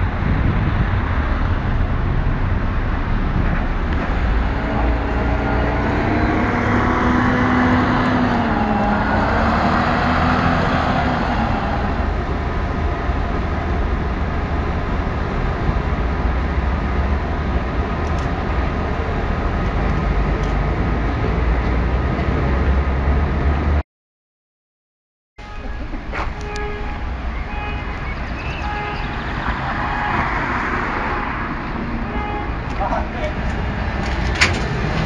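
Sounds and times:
vehicle passing: 0.0 - 14.2
traffic low rumble: 0.0 - 23.8, 25.4 - 35.0.

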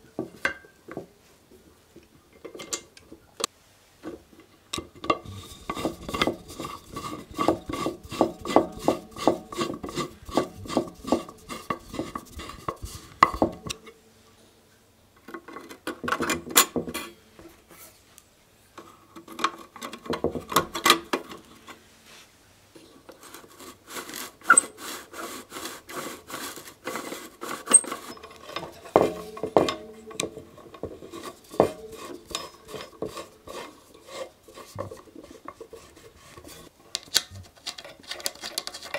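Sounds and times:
metal clicking and scraping: 4.4 - 13.9, 25.6 - 38.9.

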